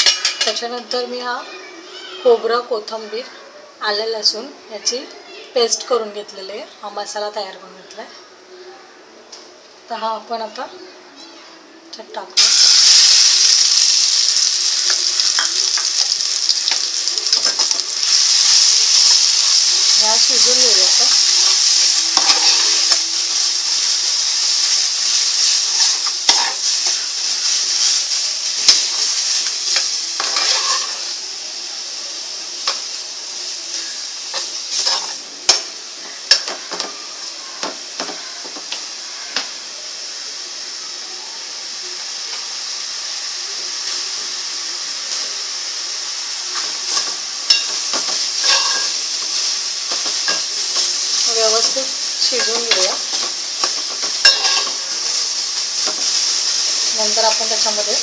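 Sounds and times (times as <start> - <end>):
spoon scraping a pan: 0.0 - 0.6, 14.4 - 23.4, 24.6 - 28.0, 28.6 - 31.1, 34.3 - 35.7, 46.6 - 57.4
paste sizzling in hot oil: 12.4 - 58.0.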